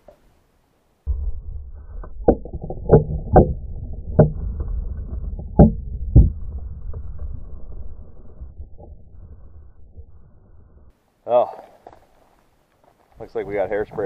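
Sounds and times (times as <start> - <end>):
low rumble: 1.0 - 11.0.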